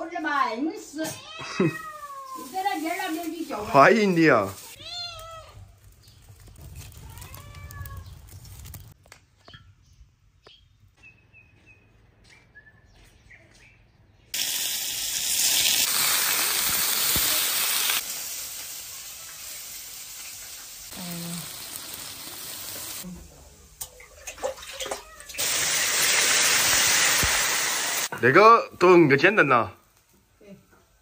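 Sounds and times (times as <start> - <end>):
cat meowing faintly: 1.0 - 2.9, 6.9 - 8.2
small birds chirping: 5.6 - 14.4
fish sizzling in hot oil: 14.4 - 23.0, 25.3 - 28.1.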